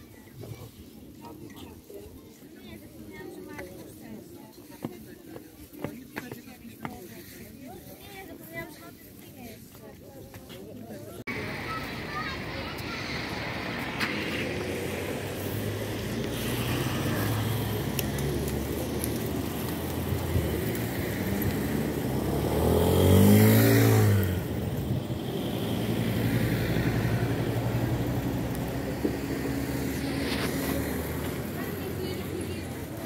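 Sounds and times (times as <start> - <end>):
cars passing: 11.3 - 33.0
motor scooter passing: 11.3 - 33.0.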